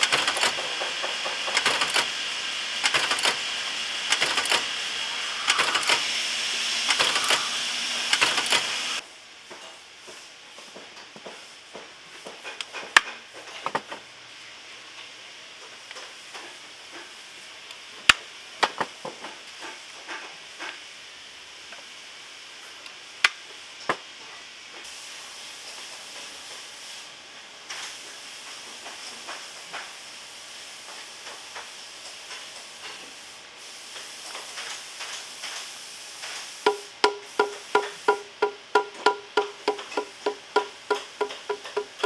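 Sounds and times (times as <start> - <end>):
steady hiss: 0.0 - 42.0
ringing hammer taps: 36.7 - 42.0.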